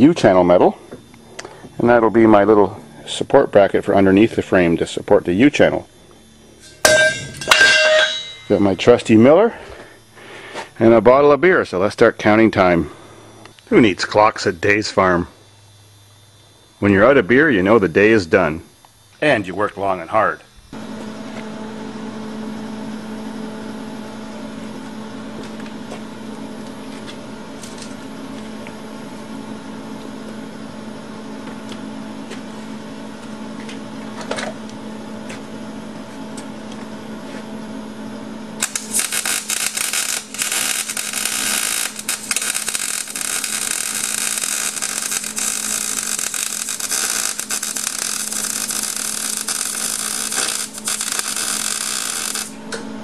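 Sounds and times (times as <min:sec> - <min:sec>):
electrical hum: 0:00.0 - 0:53.0
welding arc crackling on steel: 0:06.6 - 0:09.0, 0:38.6 - 0:52.6.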